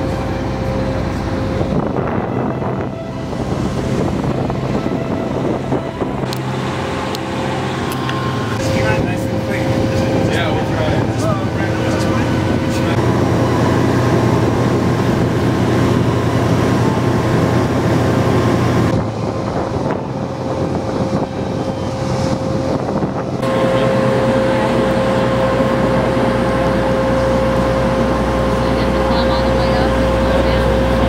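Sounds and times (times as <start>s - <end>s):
mechanical drone: 0.0s - 31.0s.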